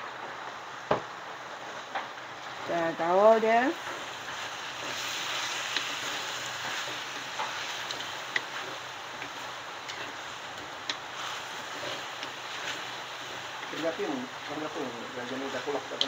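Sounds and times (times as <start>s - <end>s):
chicken sizzling in a pan: 0.0s - 16.0s.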